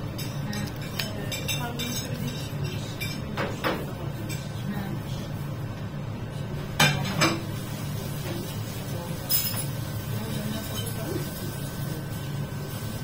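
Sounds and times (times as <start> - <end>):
steady low hum: 0.0 - 13.0
utensils clinking: 0.1 - 4.5, 9.1 - 11.3.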